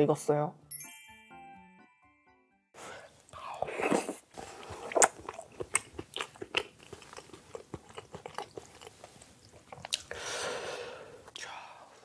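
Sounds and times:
wet chewing clicks and smacks: 4.6 - 10.2.

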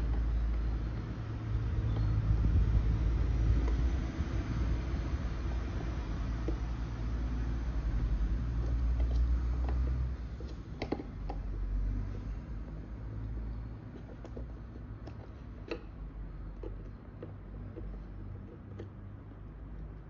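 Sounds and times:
steady low rumble: 0.0 - 13.9
plastic parts clicking together: 8.6 - 11.6.

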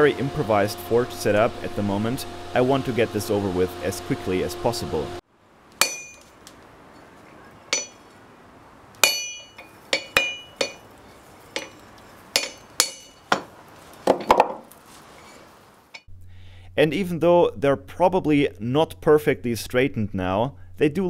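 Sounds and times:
hammer blows on hot steel: 7.7 - 8.3, 9.0 - 14.4.

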